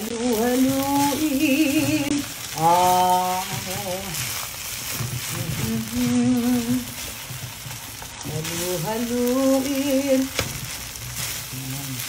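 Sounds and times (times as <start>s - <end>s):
woman's sing-song voice: 0.0s - 4.3s, 5.1s - 7.2s, 8.2s - 10.6s
rice sizzling in a hot pan: 0.0s - 12.0s
spatula scraping a pan: 1.7s - 12.0s.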